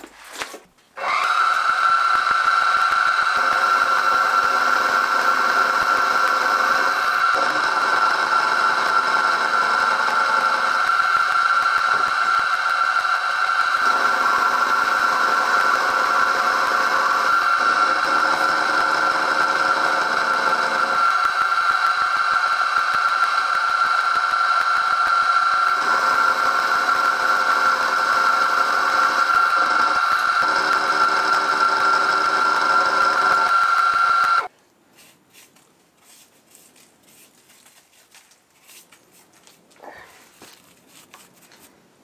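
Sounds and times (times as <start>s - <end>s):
milling machine whine and cutting: 1.0s - 34.5s.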